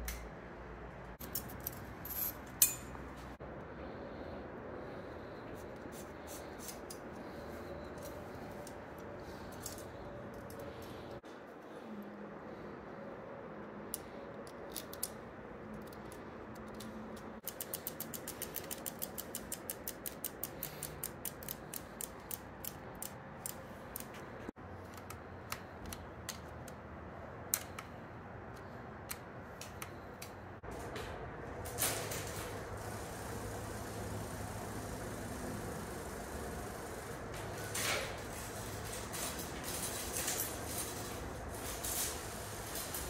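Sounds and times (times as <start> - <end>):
bicycle freewheel ratcheting: 17.4 - 24.1, 31.8 - 43.0.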